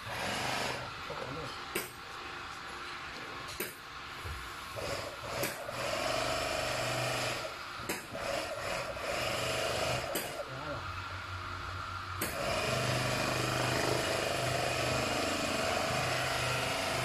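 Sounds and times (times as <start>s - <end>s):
sewing machine whirring: 0.0s - 0.8s, 4.8s - 7.5s, 8.1s - 10.1s.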